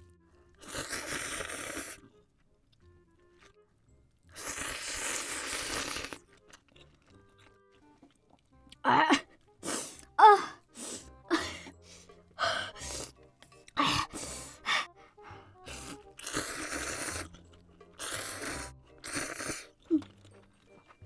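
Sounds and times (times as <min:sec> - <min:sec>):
faint background music: 0:00.0 - 0:21.0
slurping noodles: 0:00.6 - 0:02.1, 0:04.3 - 0:06.4, 0:12.8 - 0:13.2, 0:15.6 - 0:20.2
woman gasping and crying out: 0:08.9 - 0:13.0, 0:13.8 - 0:15.9.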